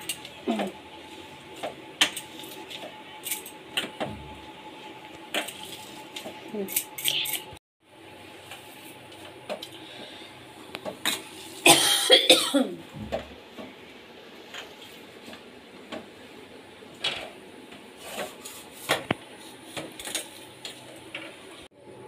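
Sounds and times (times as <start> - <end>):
person coughing: 11.7 - 12.8.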